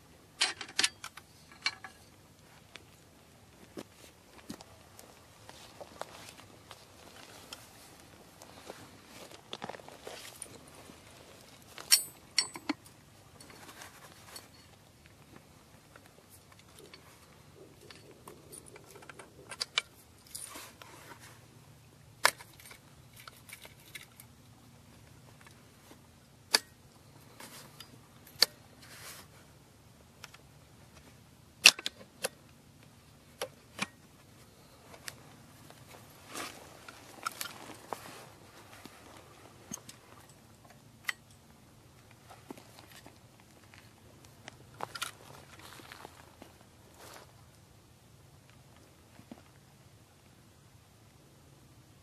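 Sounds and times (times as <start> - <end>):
metal parts clicking and clacking: 0.4 - 2.1, 11.8 - 14.7, 17.7 - 20.9, 22.2 - 24.3, 44.8 - 45.2
faint rustling: 34.2 - 40.7.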